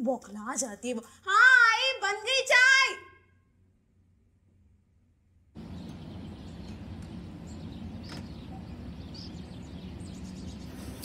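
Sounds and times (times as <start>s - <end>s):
low background rumble: 3.6s - 11.0s
bird chirps: 5.6s - 11.0s.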